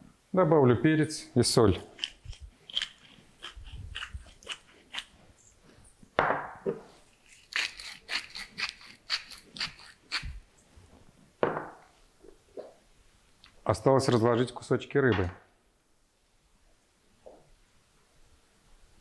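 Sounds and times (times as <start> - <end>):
spice mill grinding: 1.7 - 5.1, 7.1 - 10.4.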